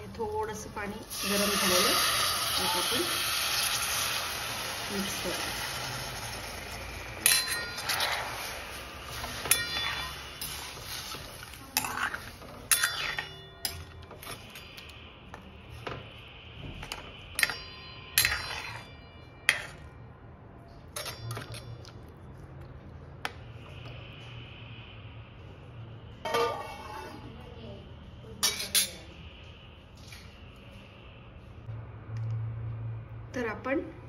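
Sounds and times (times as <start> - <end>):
metal spatula clinking in pan: 7.2 - 14.9, 17.4 - 19.9, 21.0 - 21.9, 28.4 - 29.0.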